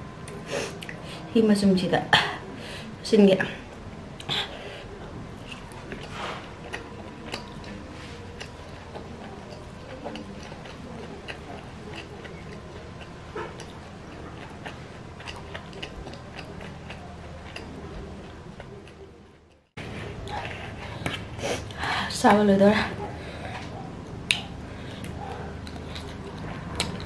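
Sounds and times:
person chewing food: 4.2 - 21.8, 23.0 - 27.0.

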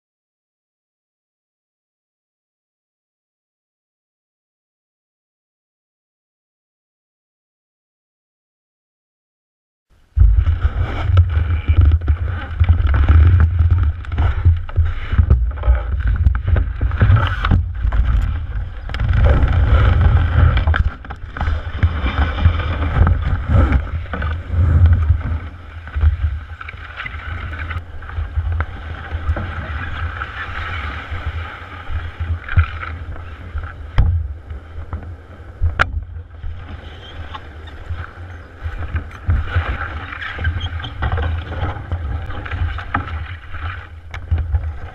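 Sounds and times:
low rumble: 10.0 - 26.6
knocks and scrapes of canoe hull: 10.1 - 44.9.

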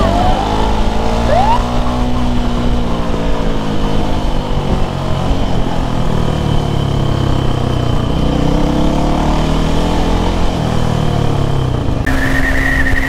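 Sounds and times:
rising engine note: 0.0 - 6.9
motorcycle engines running: 0.0 - 13.0.

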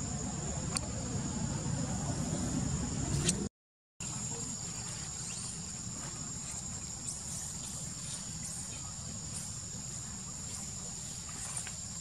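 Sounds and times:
insects trilling: 4.0 - 12.0.

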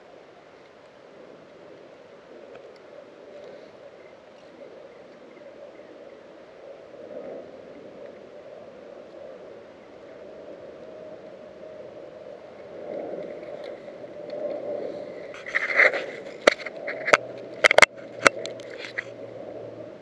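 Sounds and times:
faint low hum: 0.0 - 20.0
low rustling hiss: 0.0 - 20.0
fingers scraping on camera: 15.3 - 19.1.

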